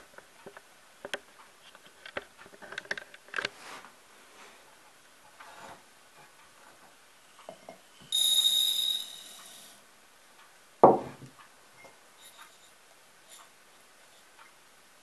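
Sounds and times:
crockery clunk: 10.8 - 11.3.

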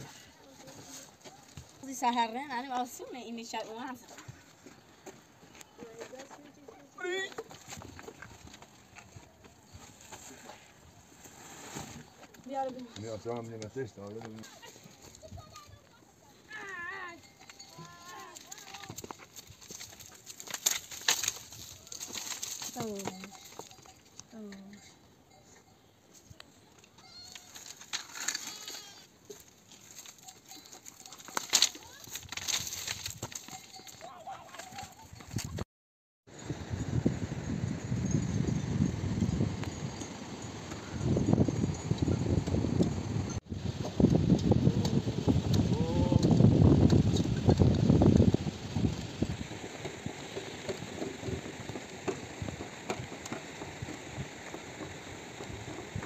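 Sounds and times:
donkey hooves on stony path: 0.0 - 35.6, 37.7 - 56.0
dry cane stalks rustling: 17.7 - 23.4, 27.2 - 33.9.

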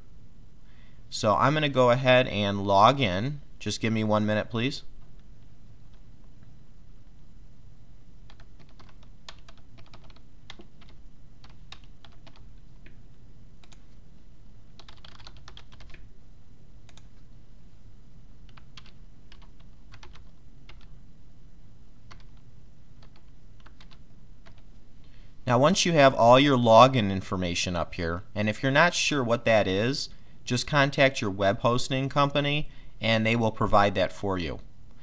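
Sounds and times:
steady low hum: 0.0 - 35.0
typing on computer keyboard: 8.3 - 13.0, 14.8 - 16.0, 18.5 - 20.9, 22.1 - 22.4, 23.0 - 24.6.

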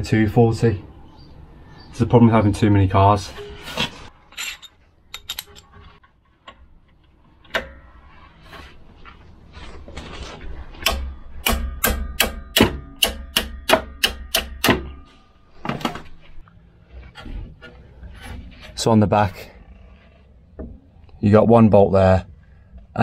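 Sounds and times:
hammer striking metal: 10.8 - 15.2.

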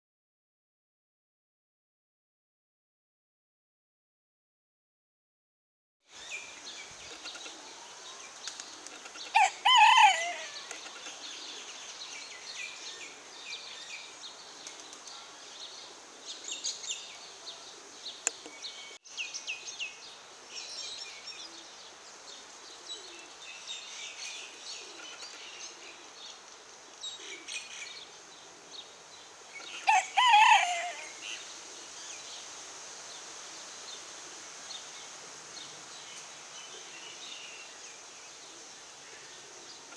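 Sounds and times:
rooster crowing: 9.3 - 10.7, 29.8 - 31.2.

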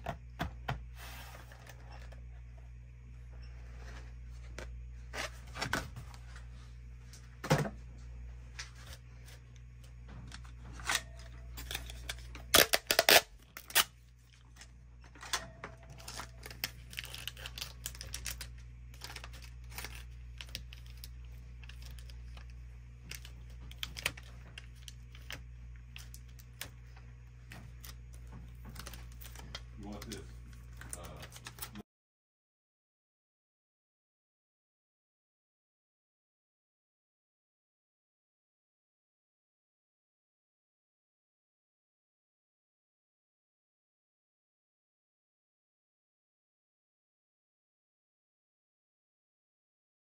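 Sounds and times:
steady low hum: 0.0 - 31.8
plastic rustling and crinkling: 15.8 - 31.8.

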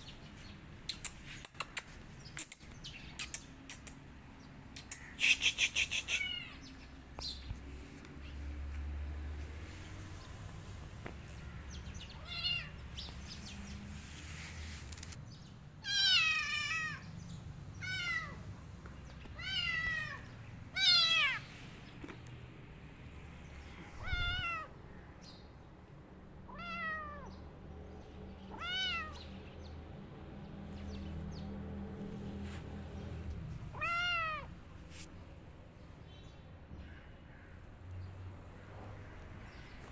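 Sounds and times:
kitten meowing: 6.0 - 6.7, 12.1 - 12.8, 19.4 - 21.4, 24.0 - 24.7, 26.5 - 27.3, 28.5 - 29.2, 33.7 - 34.5.

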